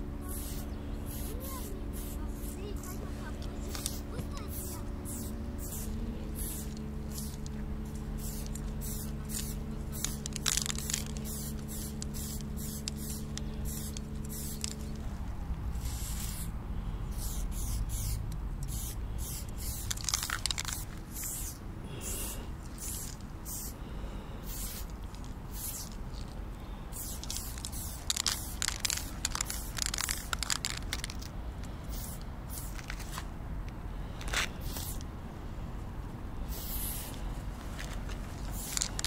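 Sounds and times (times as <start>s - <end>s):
low hum: 0.0s - 30.1s
spray can hissing: 0.3s - 3.0s, 3.6s - 14.9s, 15.8s - 16.5s, 17.2s - 23.7s, 24.4s - 26.3s, 26.9s - 31.3s, 31.9s - 33.2s, 34.4s - 35.0s, 36.5s - 37.2s, 38.4s - 39.0s.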